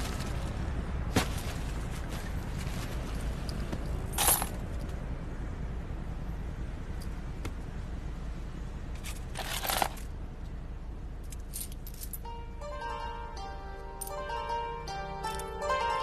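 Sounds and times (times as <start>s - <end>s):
coins jingling: 4.1s - 4.6s, 9.1s - 10.1s, 11.2s - 12.3s.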